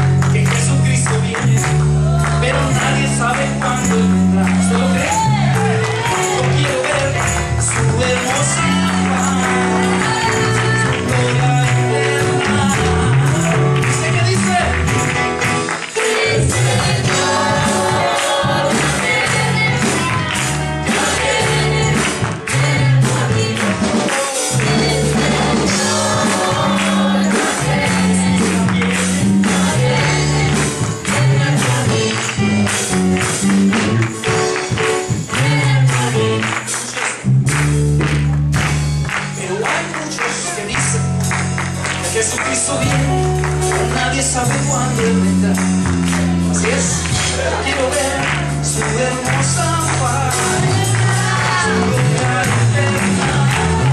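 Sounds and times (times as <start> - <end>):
bass line: 0.0 - 53.9
percussion: 0.0 - 53.9
choir singing: 16.0 - 32.2, 50.1 - 53.9.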